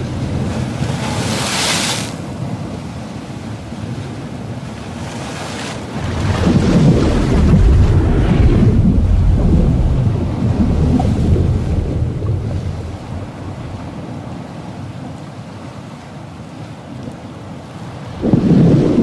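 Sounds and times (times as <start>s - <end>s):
ocean water wash: 0.0s - 19.0s
deep rumbling surge: 6.0s - 14.0s, 18.2s - 19.0s.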